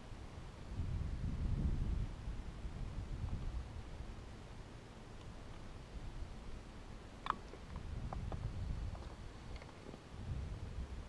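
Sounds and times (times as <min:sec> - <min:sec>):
wind buffeting microphone: 0:00.4 - 0:04.1, 0:07.4 - 0:11.0.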